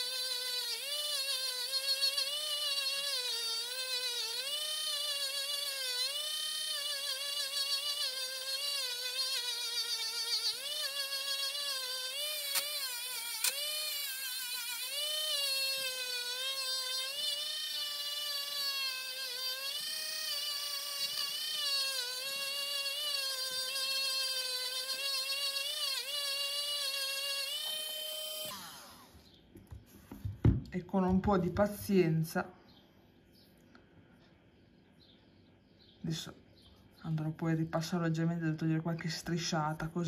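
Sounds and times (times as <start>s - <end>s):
rotary tool whining: 0.0s - 29.3s.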